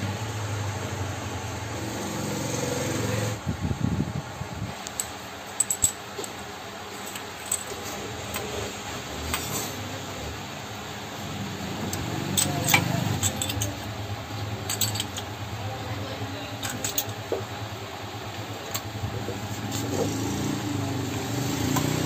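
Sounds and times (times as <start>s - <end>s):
metal tools clicking and clinking: 4.8s - 8.5s, 9.2s - 9.8s, 11.8s - 15.4s, 16.6s - 17.5s.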